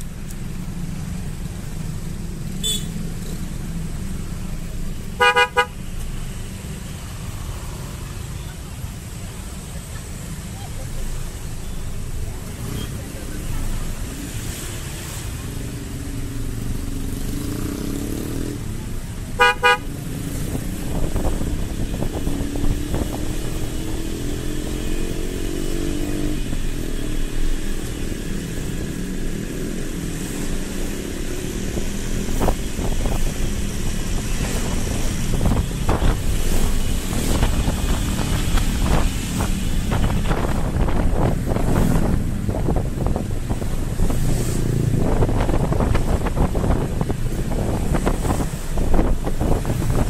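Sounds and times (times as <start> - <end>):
wind and road noise: 0.0 - 50.0
vehicle horn toots: 2.6 - 3.0, 5.1 - 5.8, 19.4 - 19.9.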